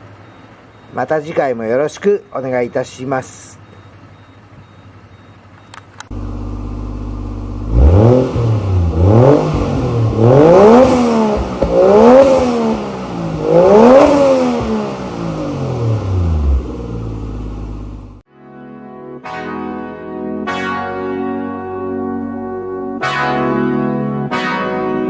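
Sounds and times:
car engine idling and revving: 0:03.7 - 0:18.2.

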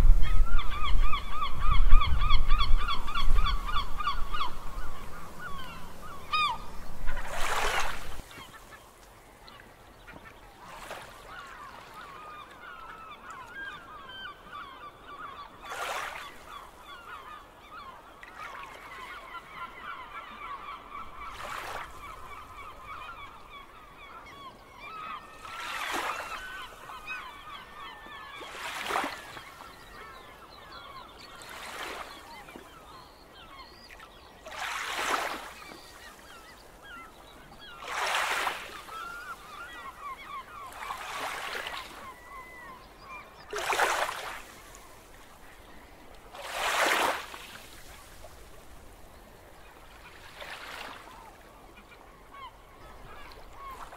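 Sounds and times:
flock of birds calling: 0:00.2 - 0:08.9, 0:09.5 - 0:47.9
sea waves washing in: 0:04.6 - 0:08.4.

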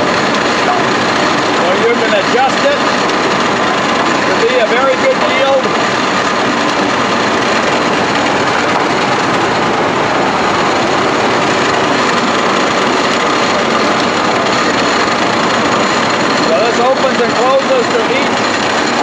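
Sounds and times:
corn cutter machine din: 0:00.0 - 0:19.0.

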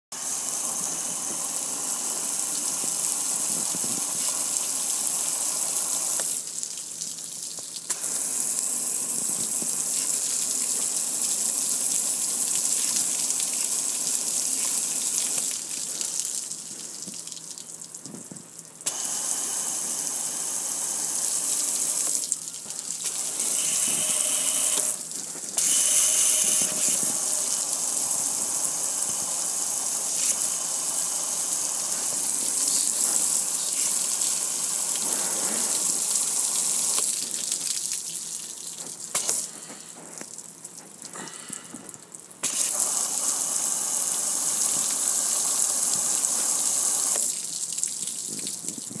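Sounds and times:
water running off in streams: 0:00.1 - 0:49.0
water spray hissing on metal grill: 0:18.9 - 0:37.6.

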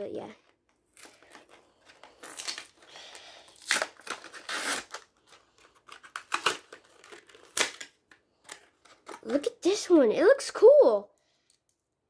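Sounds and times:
plastic packaging crinkling: 0:00.9 - 0:09.5.

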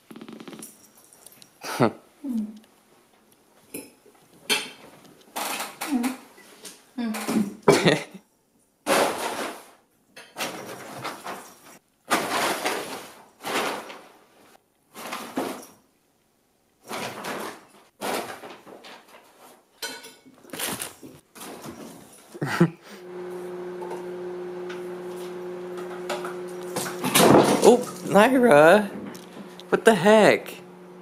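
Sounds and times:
paper bag rustling and crinkling: 0:10.4 - 0:14.2, 0:16.9 - 0:19.6, 0:20.4 - 0:22.1.

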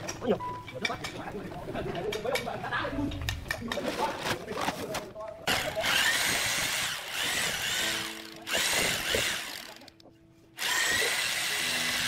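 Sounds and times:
electric drill mixing adhesive: 0:05.5 - 0:09.9, 0:10.6 - 0:12.0.

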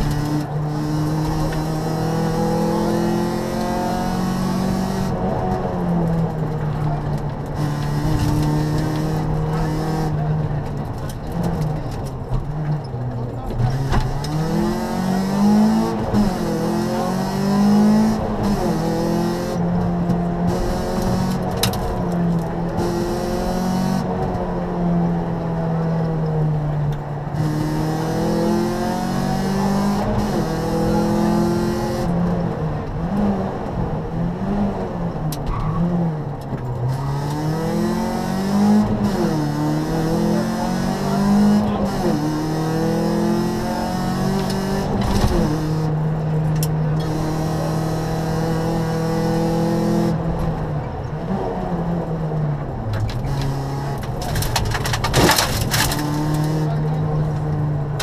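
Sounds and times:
rally car engine revving: 0:00.0 - 0:58.0
tyre and road noise: 0:00.0 - 0:58.0.

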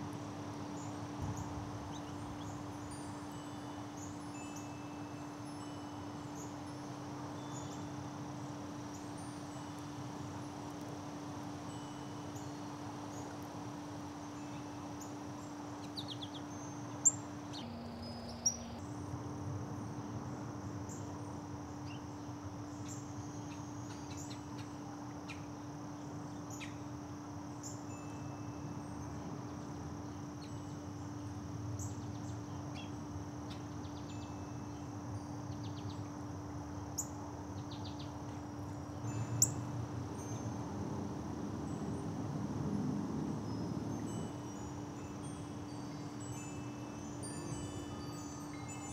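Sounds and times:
songbirds chipping: 0:00.0 - 0:18.9, 0:20.8 - 0:28.1, 0:28.8 - 0:36.3, 0:36.9 - 0:40.6
high insect drone: 0:00.0 - 0:48.9.

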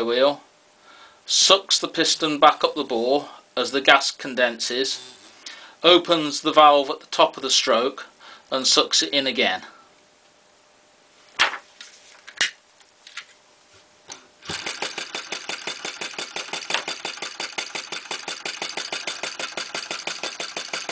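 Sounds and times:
flywheel knocks: 0:14.4 - 0:20.9
small engine rapid clicking: 0:14.4 - 0:20.9.

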